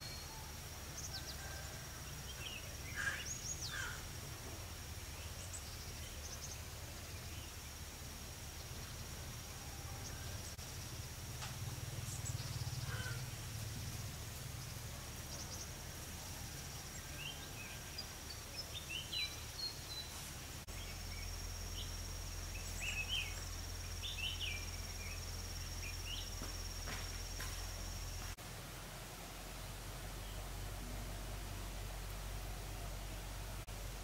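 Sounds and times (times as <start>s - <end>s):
small birds chirping: 0.0s - 9.4s, 10.0s - 28.4s
low steady hum: 0.0s - 34.0s
high-pitched insect whine: 20.7s - 28.4s.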